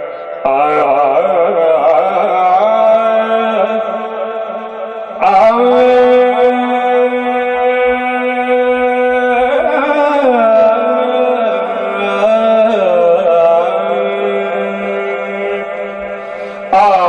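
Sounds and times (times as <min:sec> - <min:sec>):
man singing through microphone: 0:00.0 - 0:17.0.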